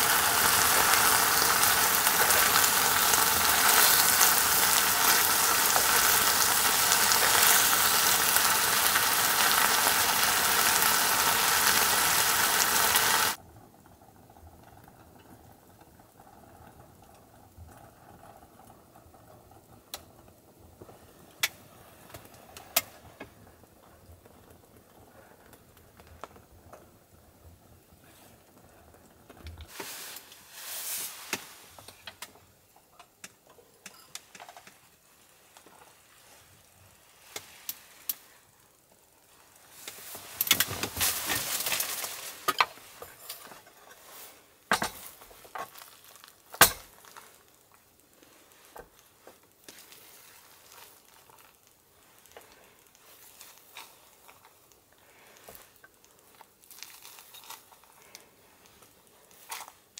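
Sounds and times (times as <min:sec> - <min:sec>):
soft hiss: 0:00.0 - 0:59.9
chopsticks working rice: 0:48.2 - 0:59.9.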